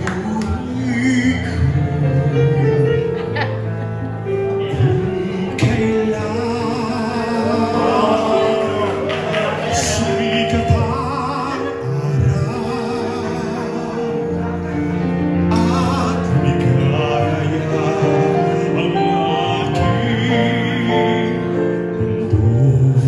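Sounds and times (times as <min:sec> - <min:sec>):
man singing ballad into microphone: 0:00.0 - 0:03.0, 0:04.7 - 0:23.0
backing music: 0:00.0 - 0:23.0.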